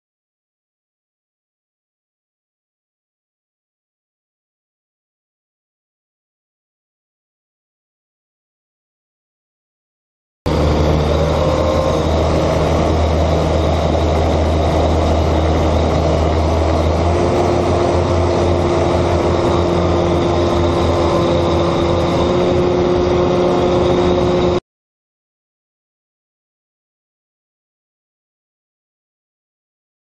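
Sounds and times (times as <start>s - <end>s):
propeller and motor running: 10.5s - 24.6s
wind noise: 10.5s - 24.6s.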